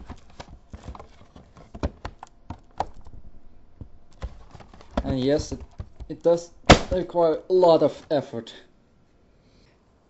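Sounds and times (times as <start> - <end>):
plastic panel clicking and cracking: 0.0 - 7.1.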